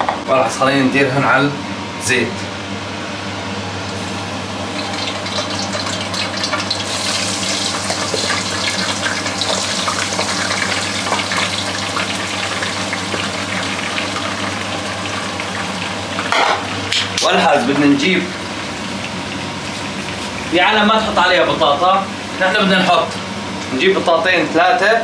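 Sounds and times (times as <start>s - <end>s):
eggplant sizzling in hot oil: 4.7s - 16.9s.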